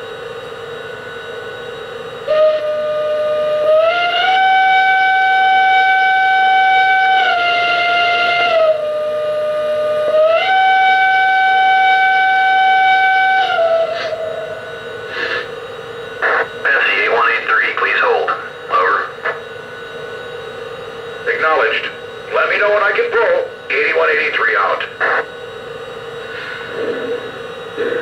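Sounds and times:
steam locomotive whistle: 2.2 - 15.5.

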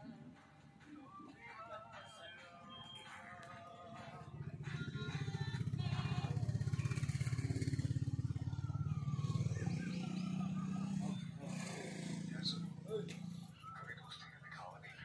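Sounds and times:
engine idling: 3.1 - 15.0.

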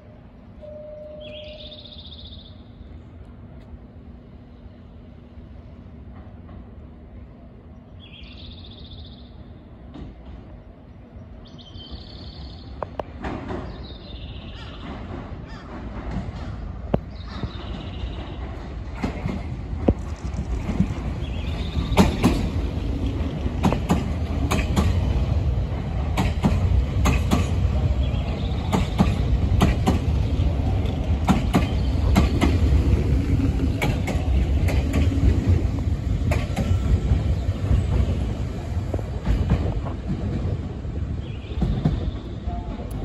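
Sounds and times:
train rumbling past: 0.0 - 43.0
wheels clacking over rail joints: 12.9 - 43.0.

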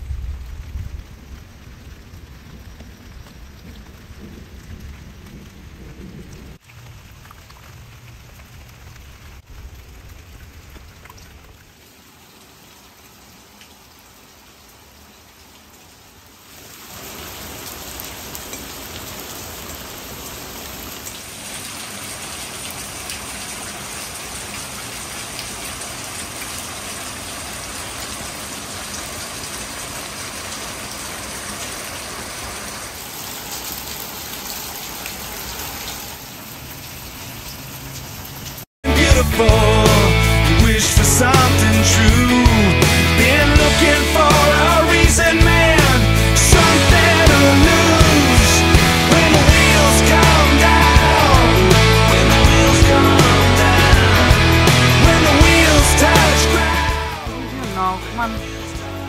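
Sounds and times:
light rain on pavement: 0.0 - 38.7.

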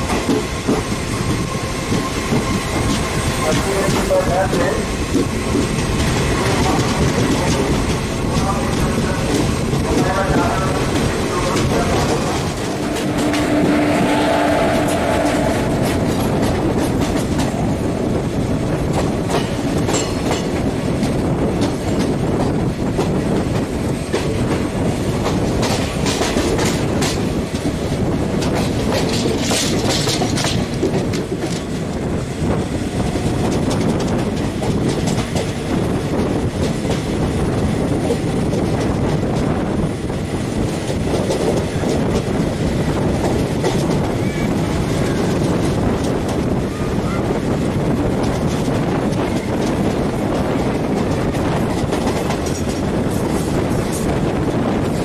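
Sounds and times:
train wheels clattering on rails: 0.0 - 55.0
train horn: 11.7 - 16.7.

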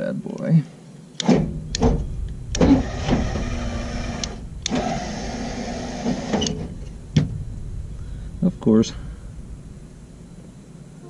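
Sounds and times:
electric jack motor running: 1.2 - 6.9.

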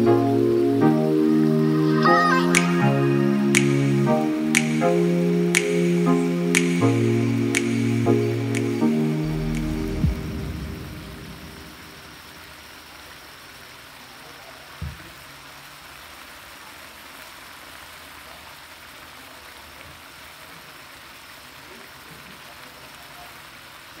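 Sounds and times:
sauce simmering in a wok: 12.4 - 24.0.

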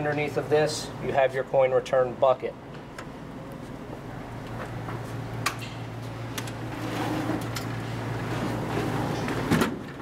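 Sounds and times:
machine door clunking open: 9.1 - 10.0.

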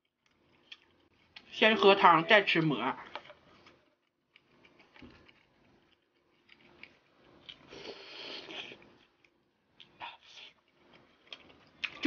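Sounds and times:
mushroom being chewed: 3.0 - 12.0.

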